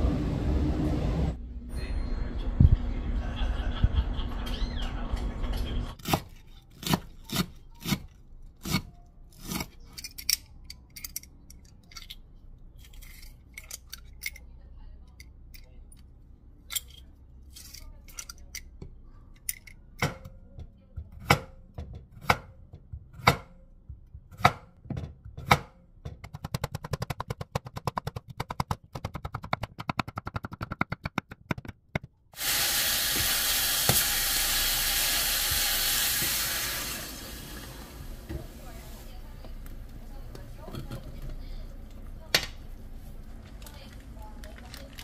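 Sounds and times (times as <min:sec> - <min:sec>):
knife chopping on wooden board: 0:21.2 - 0:32.1
loud steady hiss: 0:32.4 - 0:38.2.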